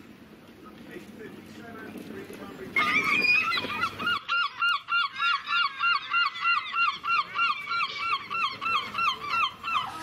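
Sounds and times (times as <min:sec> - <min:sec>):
seagull calling: 0:02.7 - 0:10.0.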